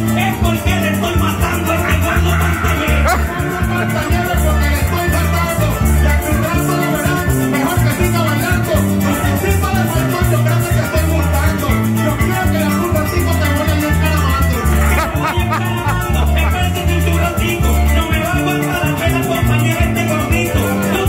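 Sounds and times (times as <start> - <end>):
folk band playing: 0.0 - 21.0
maracas shaking: 0.0 - 21.0
walking bass: 0.0 - 21.0
plucked harp: 0.2 - 21.0.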